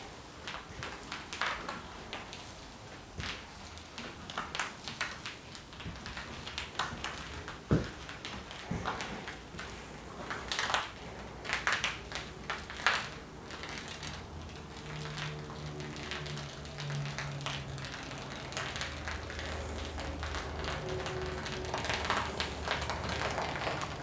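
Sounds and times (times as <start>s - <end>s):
water pouring onto a rug: 0.0s - 24.0s
crackling clicks: 3.2s - 24.0s.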